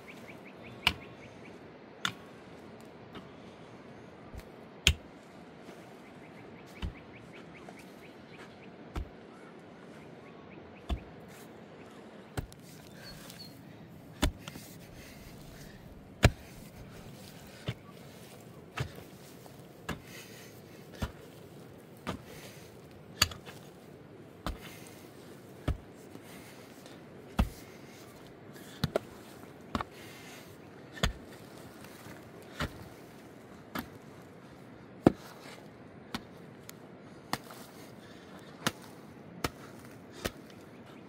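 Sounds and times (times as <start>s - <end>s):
pickaxe striking stony earth: 4.4s - 5.1s, 14.2s - 15.6s, 16.2s - 17.8s, 18.8s - 20.2s, 20.9s - 21.4s, 23.1s - 23.7s, 24.4s - 24.8s, 25.6s - 25.9s, 27.4s - 27.6s, 31.0s - 31.4s, 38.6s - 40.5s.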